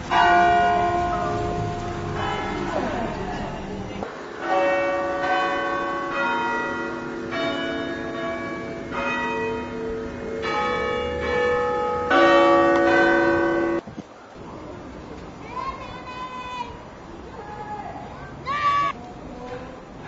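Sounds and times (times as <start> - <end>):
church bells ringing: 0.0 - 13.8.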